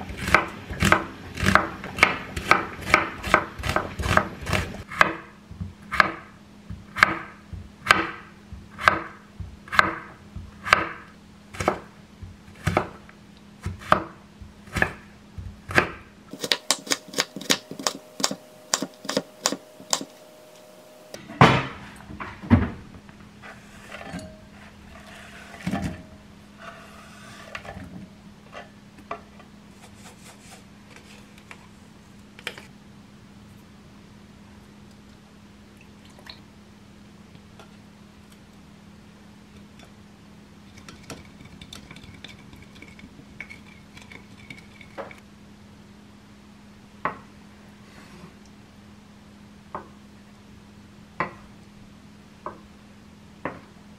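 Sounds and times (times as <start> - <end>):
knife chopping on wooden board: 5.9 - 6.3, 6.9 - 13.0, 13.6 - 15.1, 15.7 - 20.1.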